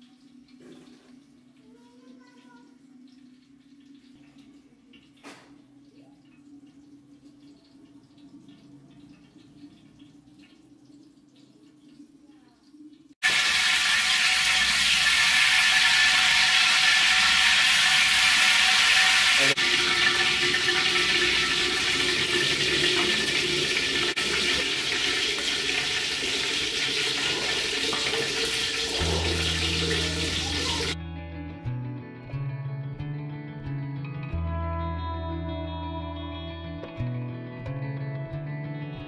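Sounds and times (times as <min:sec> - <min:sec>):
hot ghee sizzling and spattering: 0:13.2 - 0:31.0.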